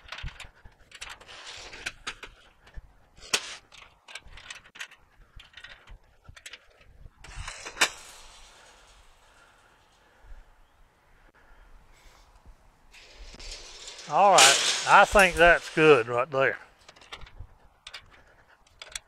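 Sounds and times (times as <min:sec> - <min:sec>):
metallic clicks and rattles: 0:00.0 - 0:10.0, 0:16.7 - 0:19.0.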